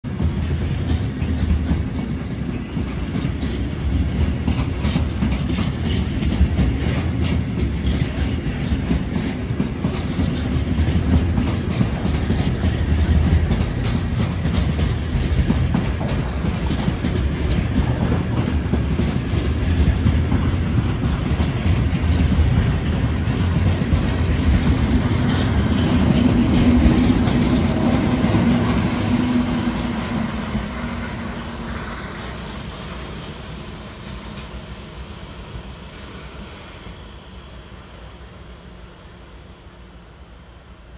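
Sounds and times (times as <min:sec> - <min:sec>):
train wheels clacking over joints: 0:00.1 - 0:33.0
locomotive engine hum: 0:08.4 - 0:40.9.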